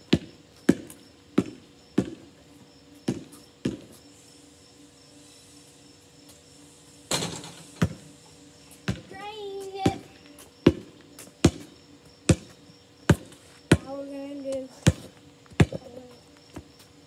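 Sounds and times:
basketball bouncing on hard ground: 0.0s - 2.4s, 3.0s - 4.0s, 7.1s - 8.1s, 8.8s - 16.9s.

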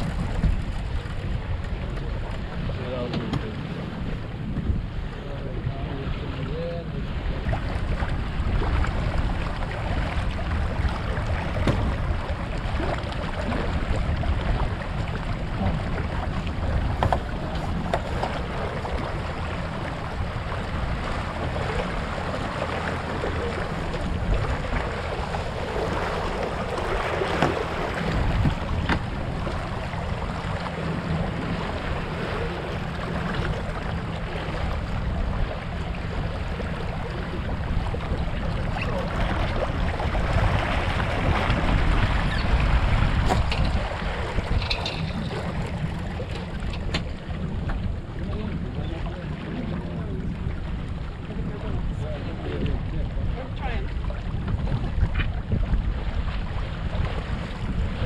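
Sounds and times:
water splashing along hull: 0.0s - 58.0s
wind buffeting microphone: 0.0s - 58.0s.

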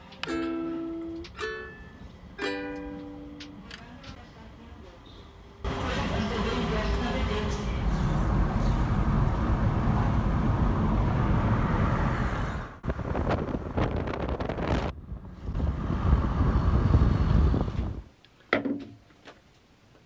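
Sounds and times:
car road noise from inside: 5.6s - 18.0s.

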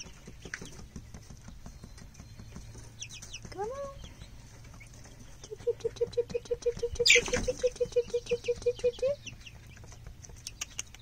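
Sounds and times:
chickens scratching clicks: 0.0s - 11.0s
chick rising chirp: 3.0s - 11.0s
young chicken trilling: 5.3s - 9.6s.

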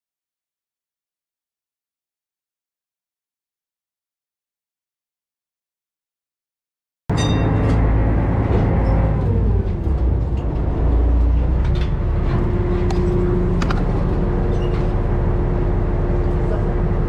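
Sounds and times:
ferry engine droning: 7.1s - 17.0s.

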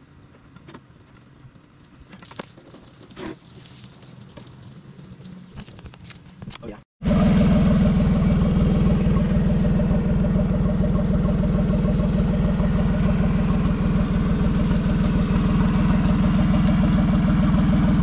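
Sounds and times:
outboard motor idling: 7.0s - 18.0s.

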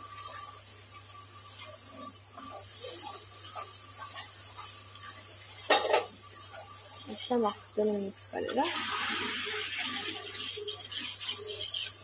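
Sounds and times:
metal spoon stirring in steel bowl: 8.5s - 12.0s.

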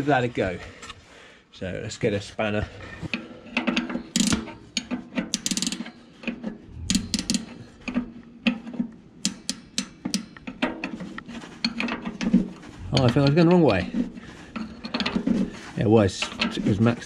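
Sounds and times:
spanner metallic clicks and ratcheting: 3.6s - 5.9s.

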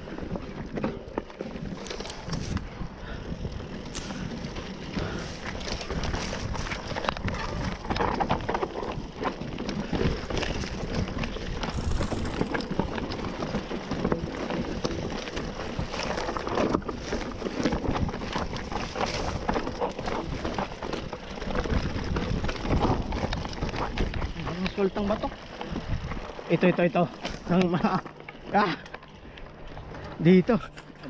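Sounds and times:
bike rattling: 0.0s - 31.0s
bike tyres crunching over stones: 0.0s - 31.0s
rushing wind noise: 10.4s - 12.9s.

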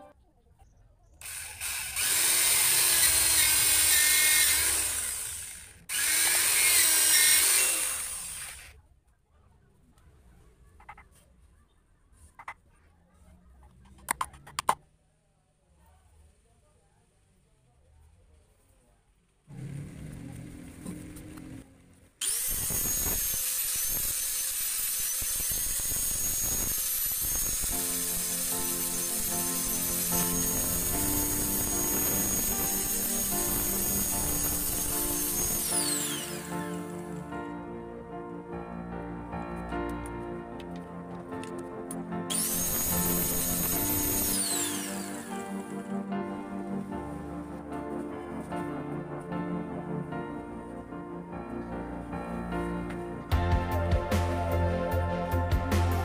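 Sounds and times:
angle grinder sanding wood: 1.2s - 8.7s, 22.2s - 37.2s, 42.3s - 46.1s
electric drill boring into wood: 1.2s - 8.8s, 22.2s - 37.2s, 42.3s - 45.8s.

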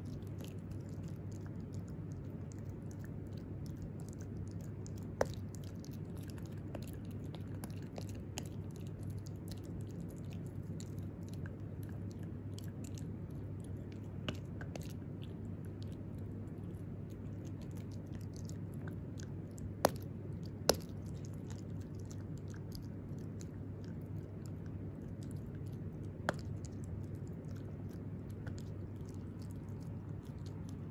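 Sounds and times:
puppy chewing dental chew: 0.0s - 30.9s
sharp cracks of chew: 0.0s - 30.9s.

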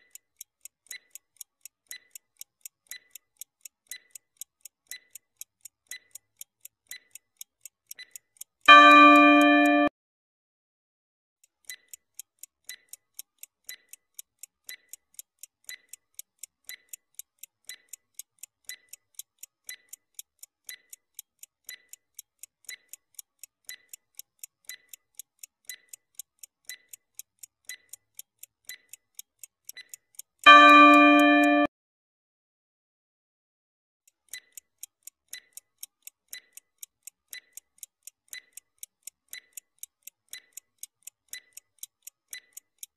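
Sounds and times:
clock ticking: 0.0s - 9.9s, 11.4s - 31.7s, 34.1s - 42.9s.

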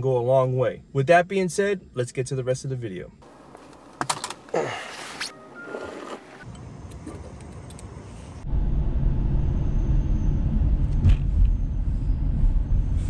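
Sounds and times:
car engine and road rumble: 3.2s - 13.0s.

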